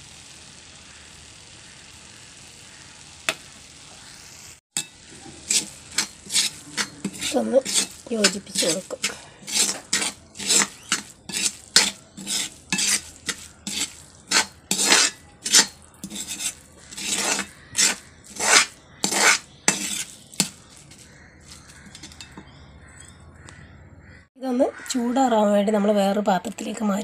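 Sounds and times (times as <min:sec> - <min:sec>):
metal spatula scraping wok: 0:04.8 - 0:23.2.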